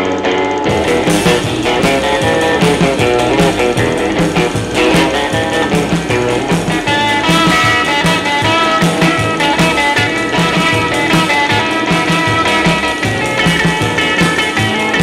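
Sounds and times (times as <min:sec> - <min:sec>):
rock and roll music: 0:00.0 - 0:15.0.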